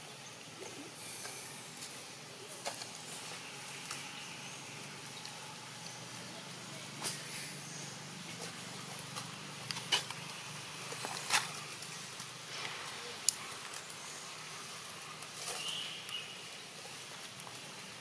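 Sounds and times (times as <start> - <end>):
faint high chirp: 15.5 - 16.4.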